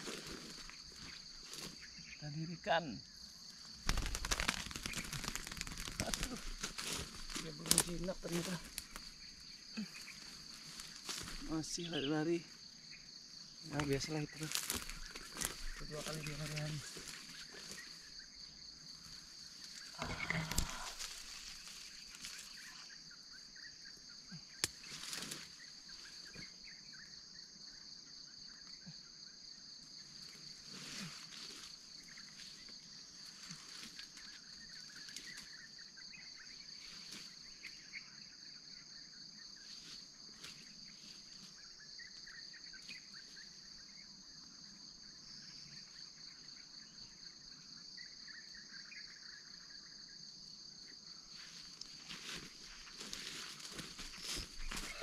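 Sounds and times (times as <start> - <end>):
high-pitched insect chorus: 0.0 - 55.0
rustling: 3.8 - 9.1.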